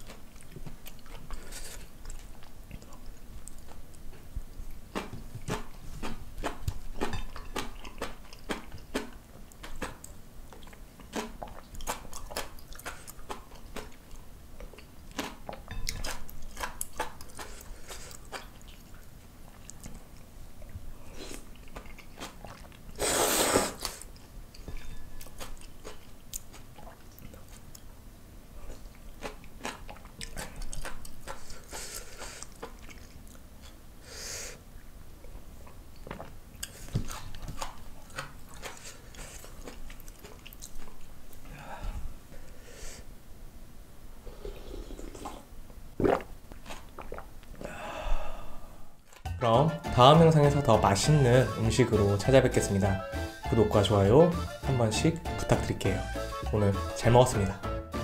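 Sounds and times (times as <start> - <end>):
chewing noodles: 0.0 - 27.9, 28.6 - 33.8, 35.2 - 41.5, 46.0 - 47.3
slurping noodles: 22.2 - 24.1, 44.3 - 47.2.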